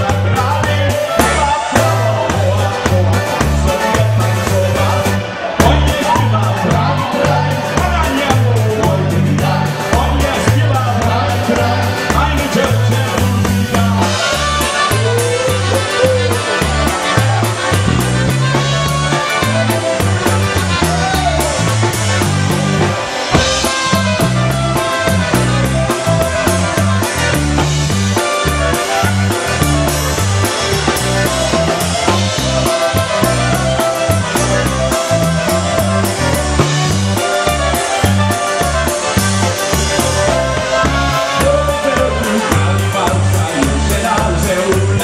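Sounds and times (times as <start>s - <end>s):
polka band playing: 0.0s - 45.0s
concertina melody: 14.0s - 44.2s.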